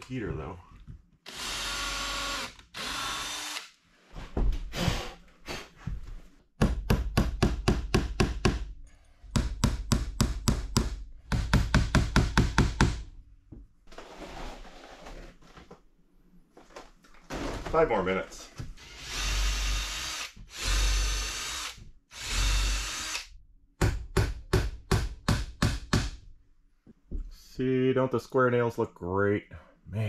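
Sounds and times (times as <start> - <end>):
cordless drill running: 1.3 - 3.7, 18.8 - 23.3
hammering nails into wood: 6.6 - 8.7, 9.3 - 13.1, 23.8 - 26.2.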